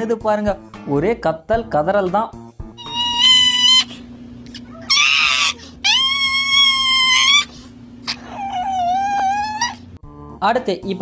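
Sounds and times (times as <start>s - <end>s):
small dog screaming and wailing: 2.8s - 10.0s.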